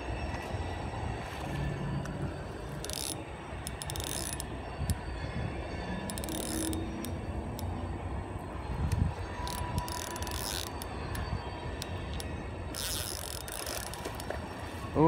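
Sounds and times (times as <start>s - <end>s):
wind rumble: 0.0s - 15.0s
fishing reel ratcheting: 2.6s - 5.2s, 5.9s - 7.8s, 8.8s - 14.4s.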